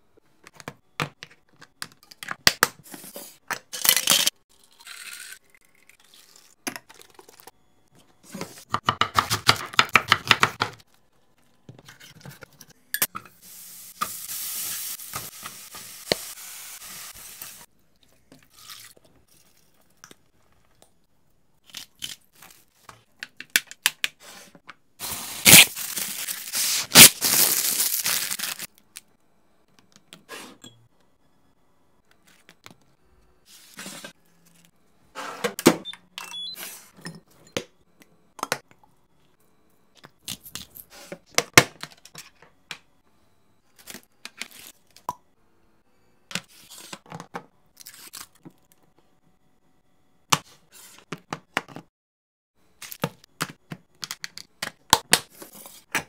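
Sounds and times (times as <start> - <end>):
pan sizzling: 13.3 - 17.7.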